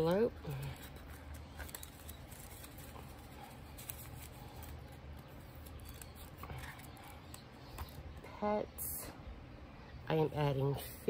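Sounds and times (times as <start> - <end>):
plastic and paper rustling: 0.0 - 8.2.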